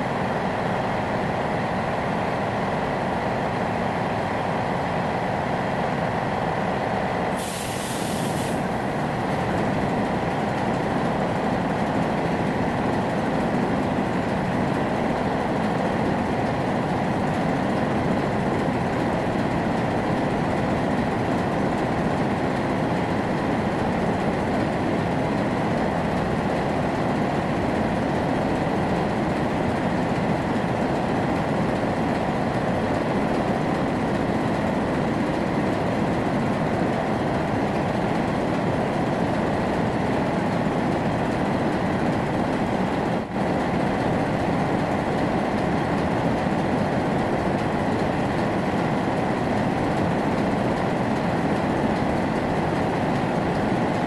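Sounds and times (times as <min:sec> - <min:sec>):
short hiss: 0:07.3 - 0:08.8.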